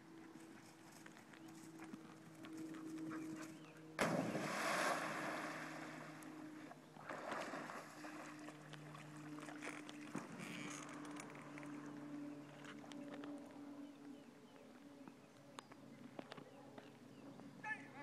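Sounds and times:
dog splashing into water: 0:04.0 - 0:06.2
water churning and splashing: 0:04.0 - 0:12.1.

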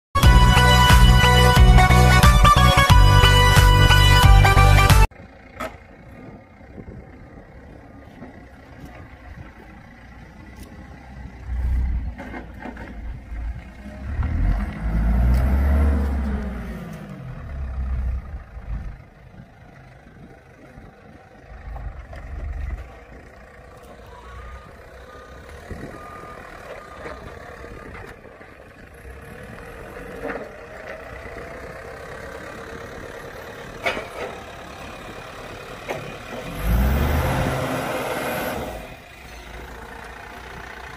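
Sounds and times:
heavy vehicle engines revving: 0:00.2 - 0:40.9
faint beeps: 0:24.0 - 0:27.6.

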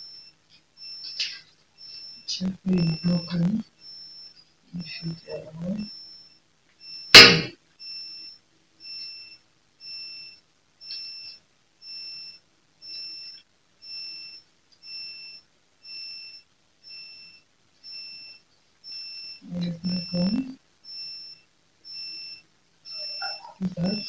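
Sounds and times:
high-pitched electronic beep: 0:00.9 - 0:04.2, 0:06.9 - 0:08.2, 0:16.9 - 0:24.0
loud knock: 0:07.2 - 0:07.5.

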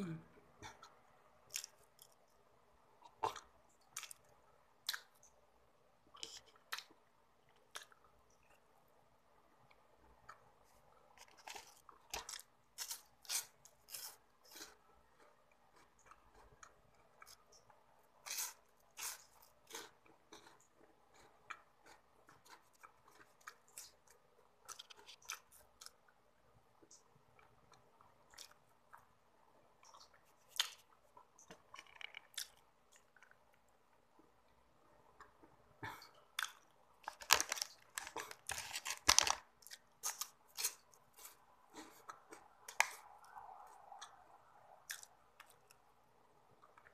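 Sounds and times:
person chewing crunchy snack: 0:03.0 - 0:05.2, 0:11.0 - 0:26.1, 0:29.8 - 0:33.4, 0:36.3 - 0:43.4, 0:44.8 - 0:45.8.

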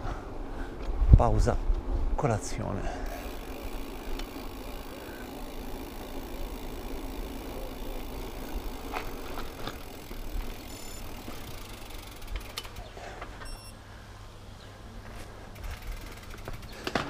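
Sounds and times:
bike tyres on rough asphalt: 0:03.0 - 0:13.5, 0:15.0 - 0:17.0
bike knocking on pavement: 0:03.3 - 0:12.7, 0:15.6 - 0:17.0
short high electronic beeps: 0:10.7 - 0:11.1, 0:13.5 - 0:13.7.

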